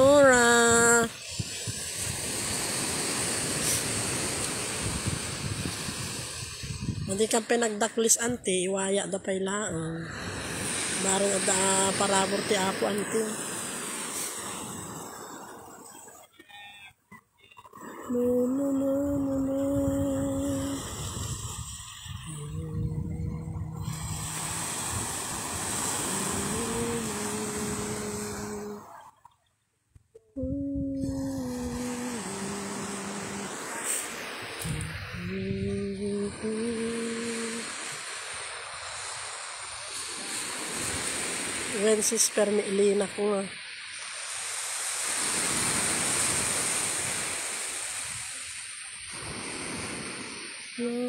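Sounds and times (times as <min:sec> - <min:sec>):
surf washing onto beach: 0:00.0 - 0:08.6, 0:10.0 - 0:29.0, 0:30.9 - 0:51.0
wind on microphone: 0:00.0 - 0:08.6, 0:17.6 - 0:28.8, 0:30.0 - 0:38.0.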